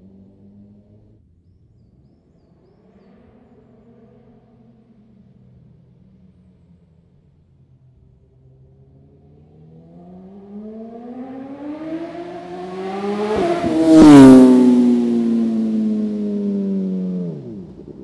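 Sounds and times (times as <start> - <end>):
motorcycle revving past: 8.8 - 18.0.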